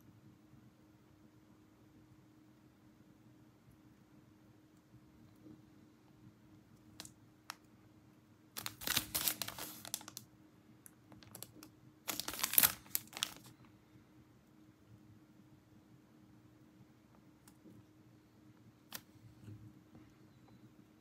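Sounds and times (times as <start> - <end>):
plastic packaging crinkling: 8.6 - 10.3, 11.1 - 13.6.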